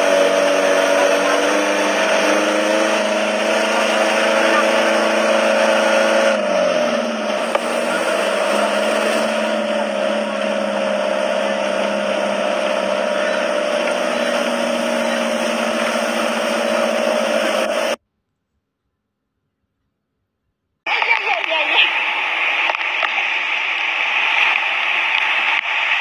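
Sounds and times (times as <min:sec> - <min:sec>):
road noise hiss: 0:00.0 - 0:18.0, 0:20.9 - 0:26.0
vehicle engine whine: 0:00.0 - 0:18.0.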